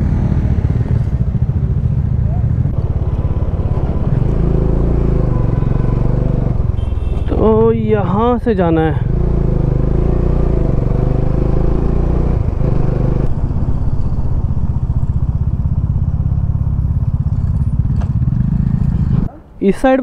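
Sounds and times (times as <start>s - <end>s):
motorcycle engine running: 0.0s - 19.3s.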